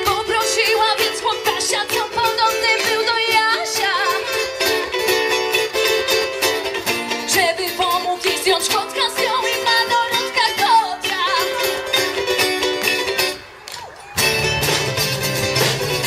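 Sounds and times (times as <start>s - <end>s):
women singing: 0.0s - 4.4s, 7.3s - 11.9s
strummed acoustic guitars: 0.0s - 13.6s, 14.2s - 16.0s
ukulele: 0.0s - 16.0s.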